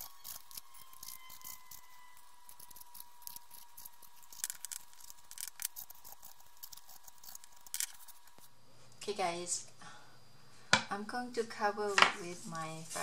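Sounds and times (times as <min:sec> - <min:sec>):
paper distressing tool scraping paper: 0:00.0 - 0:08.4.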